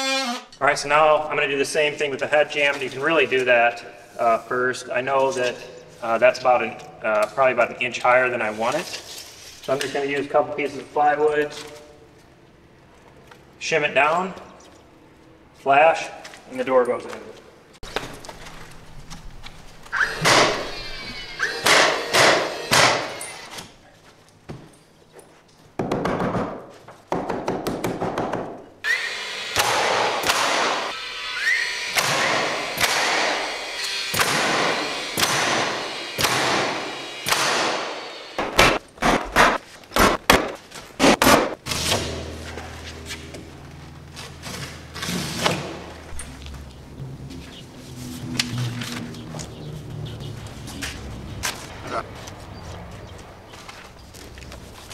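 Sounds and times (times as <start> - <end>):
nail gun firing into wood: 20.2 - 20.6, 21.6 - 23.2, 29.6 - 30.9, 32.0 - 33.4, 34.1 - 42.2.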